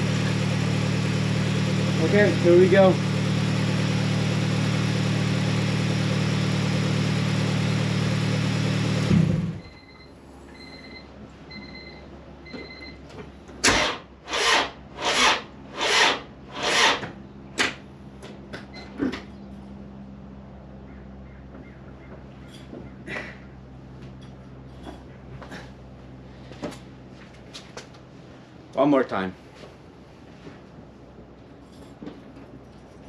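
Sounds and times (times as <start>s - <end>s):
car engine idling: 0.0s - 9.8s.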